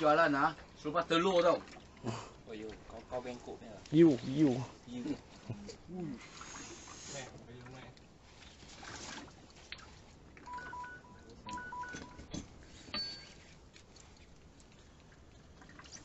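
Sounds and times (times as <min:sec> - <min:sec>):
two-tone electronic beeps: 0:10.5 - 0:12.3.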